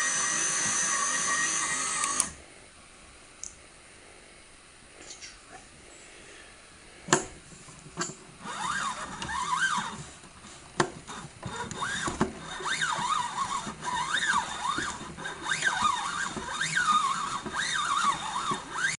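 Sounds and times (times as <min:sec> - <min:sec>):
toy washing machine whine: 0:00.0 - 0:02.4, 0:08.4 - 0:18.9.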